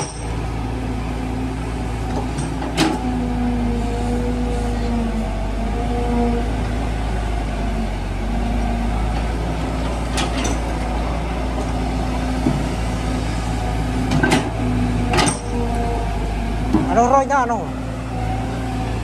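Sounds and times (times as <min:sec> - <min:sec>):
excavator diesel engine rumbling: 0:00.0 - 0:19.0
hydraulic whine: 0:00.0 - 0:19.0.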